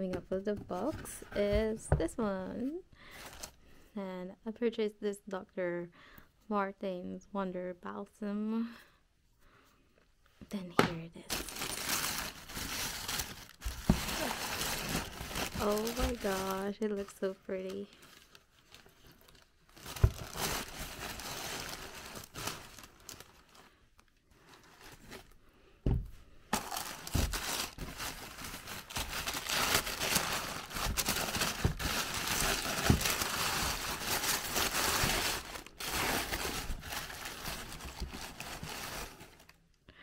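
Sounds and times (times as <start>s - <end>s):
tissue paper rustling in a box: 11.3s - 23.6s, 24.3s - 25.4s, 26.6s - 39.5s.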